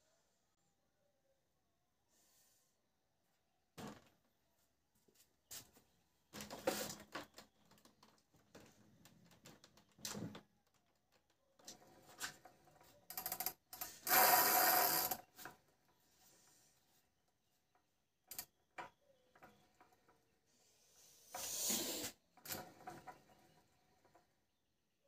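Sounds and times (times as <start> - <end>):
wood knocks and creaks: 6.3 - 13.0.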